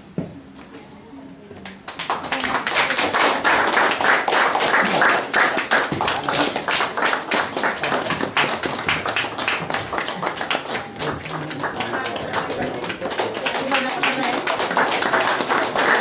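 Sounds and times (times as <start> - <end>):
people applauding: 1.9 - 16.0.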